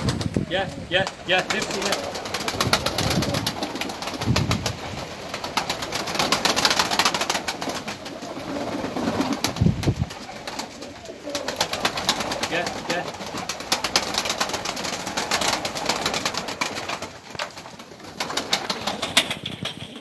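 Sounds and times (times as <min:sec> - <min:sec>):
pigeon wings flapping: 0:00.0 - 0:20.0
pigeon cooing: 0:01.3 - 0:04.4, 0:07.1 - 0:14.2.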